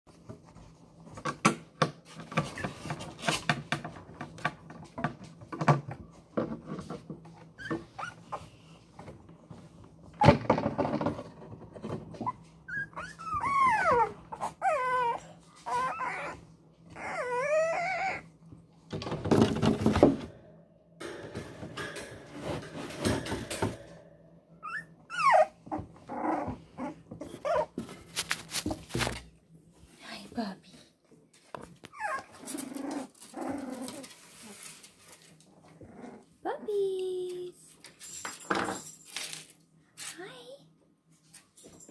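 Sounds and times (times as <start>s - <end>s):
puppies scuffling and scrabbling: 0.1s - 30.1s, 31.0s - 36.0s
puppy whining and crying: 7.5s - 8.7s, 12.2s - 18.5s, 24.6s - 27.8s, 31.8s - 34.6s
puppies moving about: 27.1s - 29.3s.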